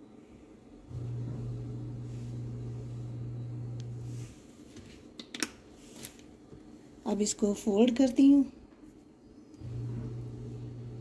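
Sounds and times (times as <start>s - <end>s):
steady low hum: 0.0s - 4.8s, 9.1s - 11.0s.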